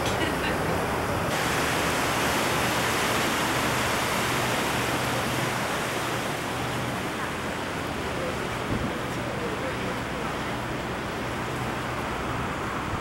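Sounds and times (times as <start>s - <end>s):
rushing wind: 0.0s - 9.4s
boat engine humming: 0.0s - 13.0s
rushing water: 0.0s - 13.0s.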